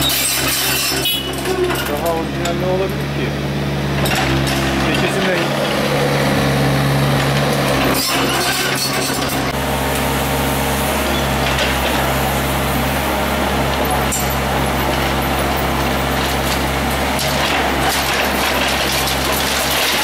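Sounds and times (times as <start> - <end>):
clinks and knocks of concrete: 0.0 - 3.0, 4.0 - 5.8, 7.2 - 9.5, 13.7 - 20.0
diesel engine running: 0.0 - 20.0.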